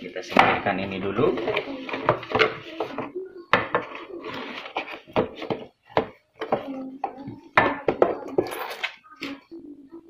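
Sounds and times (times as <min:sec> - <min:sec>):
cardboard rustling and scraping: 0:04.0 - 0:05.6.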